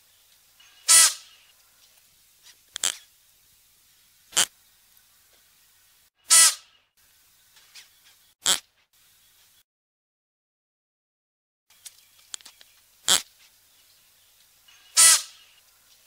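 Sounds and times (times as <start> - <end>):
antelope short sharp calls: 0.6 - 1.4, 6.2 - 6.8, 14.7 - 15.6.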